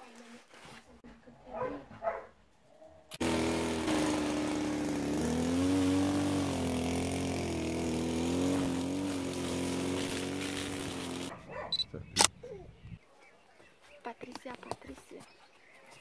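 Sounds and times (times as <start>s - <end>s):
string trimmer engine running: 3.1s - 11.3s.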